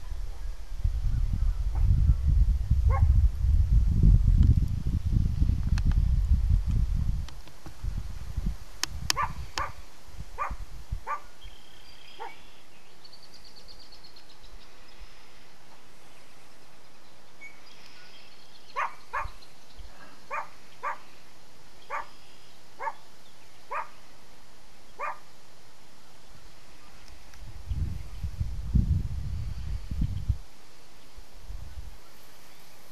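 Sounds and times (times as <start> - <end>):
dog barking: 2.9 - 3.1, 9.2 - 9.8, 10.4 - 11.3, 18.8 - 19.4, 20.3 - 21.0, 21.9 - 22.1, 22.8 - 23.0, 23.7 - 24.0, 25.0 - 25.2.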